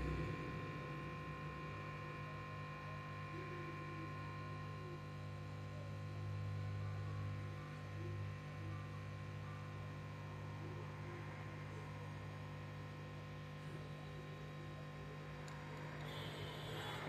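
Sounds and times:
low electrical hum: 0.0 - 17.0
faint steady tones: 12.8 - 17.0.

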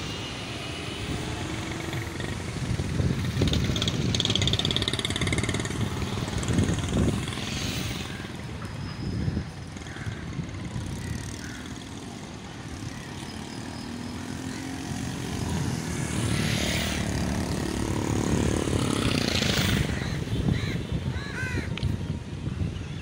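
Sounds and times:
crow cawing: 11.1 - 11.9, 19.9 - 21.7.

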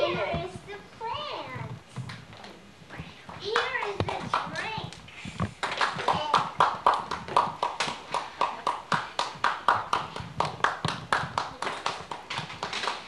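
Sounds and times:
rhythmic hand clapping: 3.4 - 13.0.

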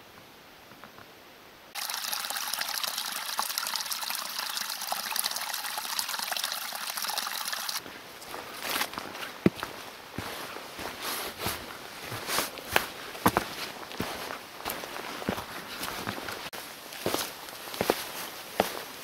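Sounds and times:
water trickling down rocks: 1.8 - 7.8
footsteps on forest trail: 7.8 - 19.0.

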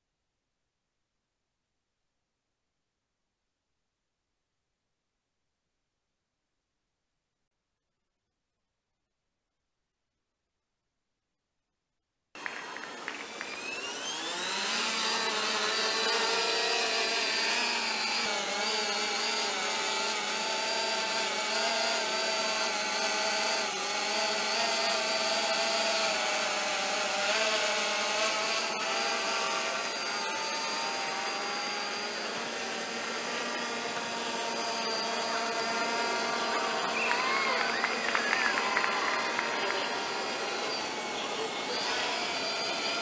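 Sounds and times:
drone propellers whining buzz: 12.4 - 43.0.

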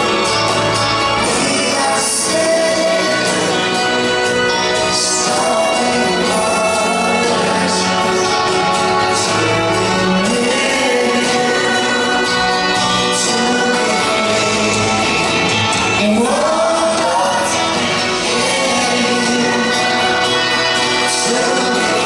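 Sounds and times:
guitar: 0.0 - 22.0
lead singer singing: 0.0 - 22.0
violins: 0.0 - 22.0
female backing singers: 9.1 - 22.0.

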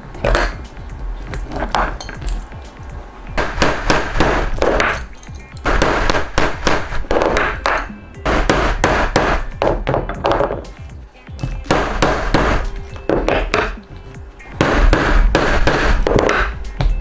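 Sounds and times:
background music: 0.0 - 17.0
metal tools knocking on wood: 1.3 - 2.6, 9.2 - 13.8.

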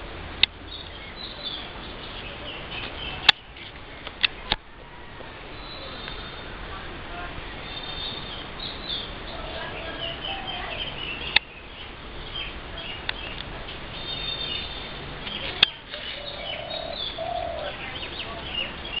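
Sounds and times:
birds chirping: 0.0 - 19.0
dove cooing: 15.6 - 18.7.

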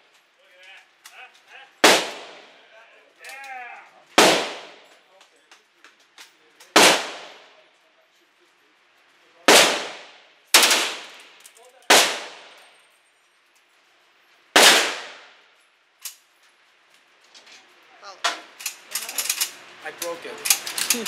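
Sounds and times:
gunshots echoing indoors: 1.8 - 2.5, 4.2 - 4.9, 6.7 - 7.5, 9.5 - 12.6, 14.6 - 15.4.

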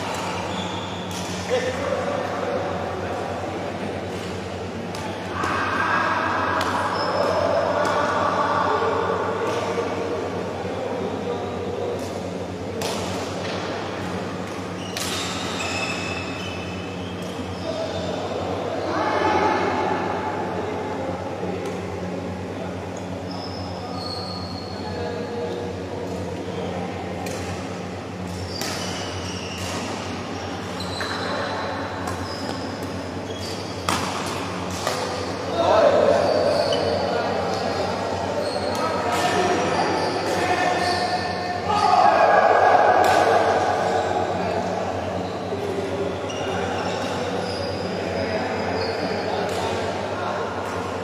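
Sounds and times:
shoes squeaking on court: 28.4 - 35.4, 36.2 - 41.5
racket hitting shuttlecock: 33.8 - 35.3.

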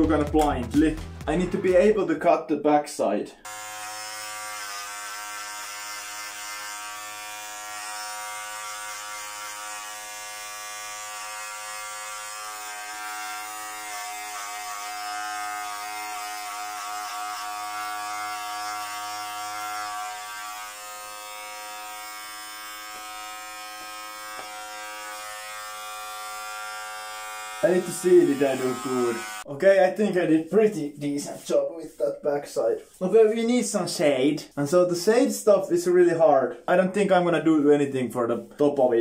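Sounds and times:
electric hair clipper buzzing: 3.4 - 29.5.

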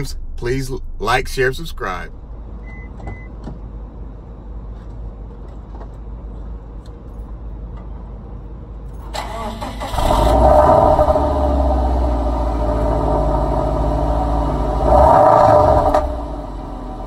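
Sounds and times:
car engine starting: 0.0 - 4.5, 8.9 - 17.0.

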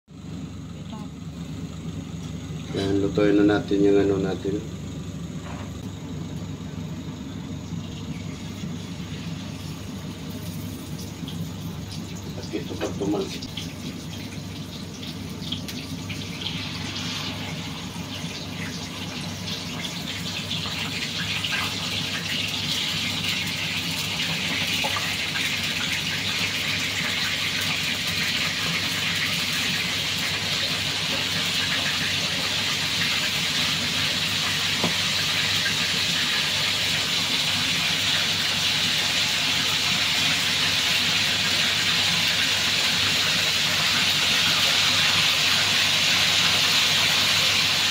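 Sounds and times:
squid sizzling in hot oil: 6.4 - 47.9.

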